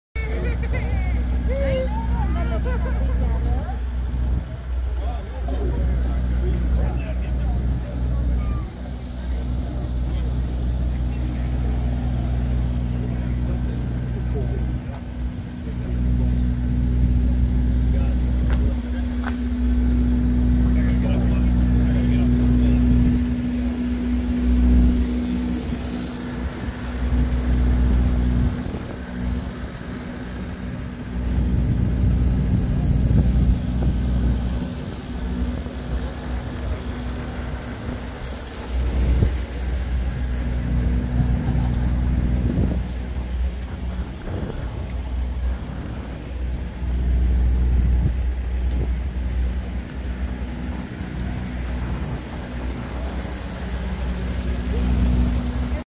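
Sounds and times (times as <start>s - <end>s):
vehicle engines rumbling: 0.0s - 55.9s
wind gusts on microphone: 38.8s - 53.2s.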